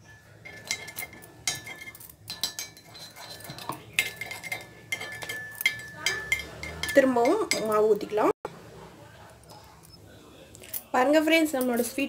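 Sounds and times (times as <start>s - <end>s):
metal spoon scraping a pan: 0.0s - 8.3s.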